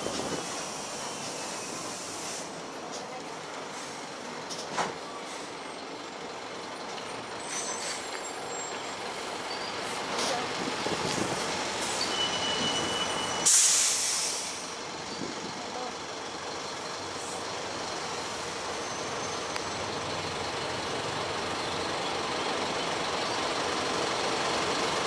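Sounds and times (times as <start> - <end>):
brake squeal: 0.0 - 2.5, 6.9 - 10.5, 11.4 - 15.9, 16.6 - 20.3
road traffic rumbling: 0.0 - 25.0
air brake hiss: 0.2 - 2.6, 11.8 - 14.8.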